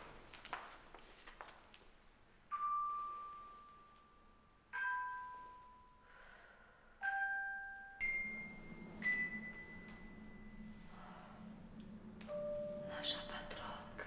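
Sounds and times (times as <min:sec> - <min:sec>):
bell-like chime notes: 0:07.0 - 0:10.8, 0:12.3 - 0:13.0
low hum: 0:07.4 - 0:14.0.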